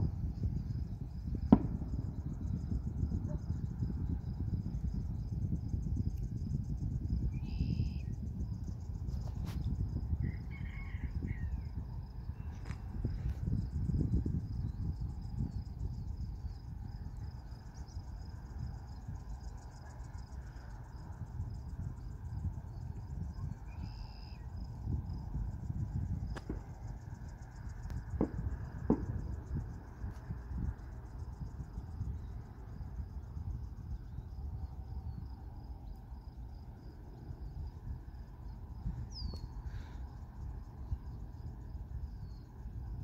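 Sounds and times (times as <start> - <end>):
low uneven rumble: 0.0 - 7.2
uneven low rumble: 0.0 - 17.4
crickets chirping: 0.0 - 43.0.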